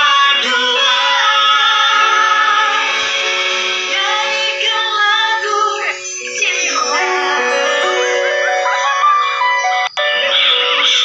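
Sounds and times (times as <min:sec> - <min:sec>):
man singing in a high voice: 0:00.0 - 0:03.2
instrumental backing track: 0:00.0 - 0:11.0.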